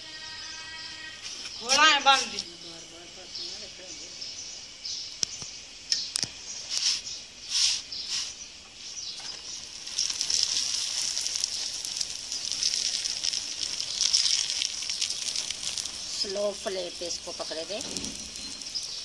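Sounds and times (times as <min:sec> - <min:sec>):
flatbread sizzling in a pan: 0:06.5 - 0:19.0.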